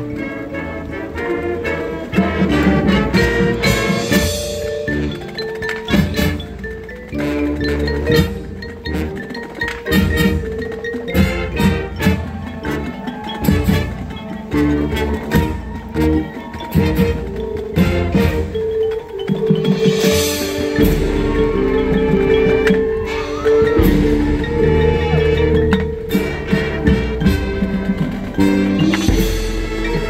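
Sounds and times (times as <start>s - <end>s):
marching band playing: 0.0s - 30.0s
marimbas and mallet percussion: 0.0s - 30.0s.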